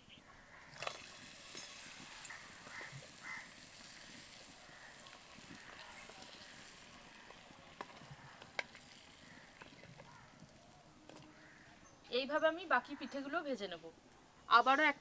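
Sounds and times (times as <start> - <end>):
oil sizzling: 0.7 - 11.7.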